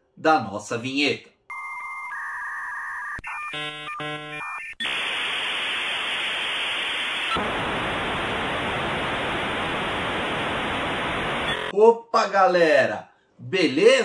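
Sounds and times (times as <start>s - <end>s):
television static hiss: 4.8s - 11.7s.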